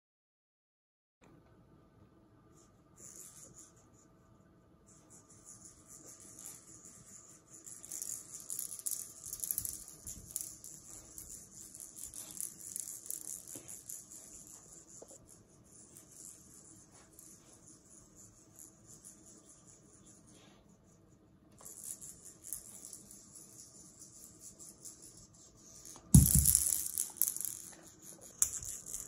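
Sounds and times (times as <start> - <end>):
plastic rattle ball rattling: 6.0 - 15.2, 21.6 - 29.0.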